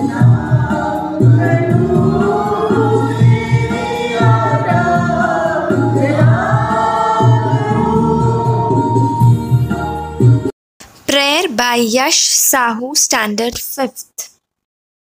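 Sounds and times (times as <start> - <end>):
group singing prayer song: 0.0 - 9.2
rhythmic instrumental accompaniment: 0.0 - 10.5.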